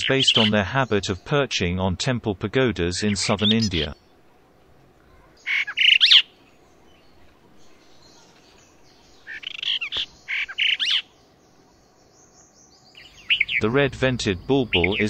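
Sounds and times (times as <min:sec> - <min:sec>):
starling calling: 0:00.0 - 0:00.9, 0:03.0 - 0:04.0, 0:05.2 - 0:15.0.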